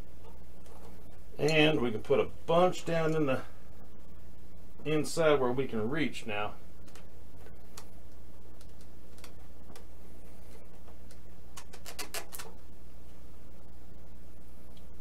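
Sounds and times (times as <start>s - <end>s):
steady low hum: 0.0s - 15.0s
stick clicking and tapping: 11.0s - 12.5s.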